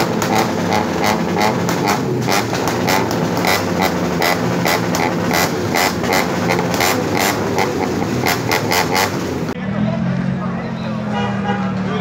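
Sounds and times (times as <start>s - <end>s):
car exhaust crackles: 0.0s - 9.6s
engine low hum: 0.0s - 10.9s.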